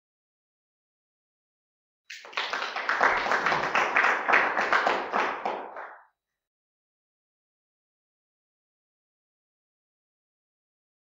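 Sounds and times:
hands clapping: 2.1s - 6.2s.

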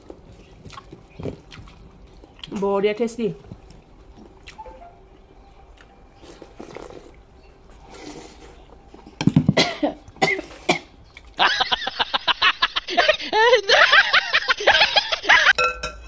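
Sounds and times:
person coughing hard: 9.5s - 10.9s.

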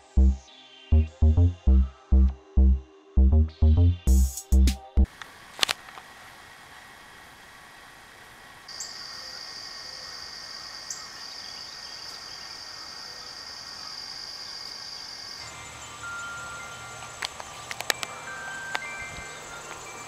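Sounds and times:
electronic music: 0.0s - 5.1s
insect trill: 8.7s - 20.0s.

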